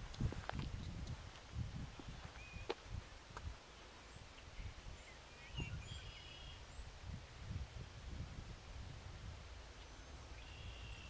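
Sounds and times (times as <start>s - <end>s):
wind buffeting microphone: 0.0s - 11.0s
faint bird chirps: 2.3s - 2.7s, 3.8s - 7.0s, 9.8s - 11.0s.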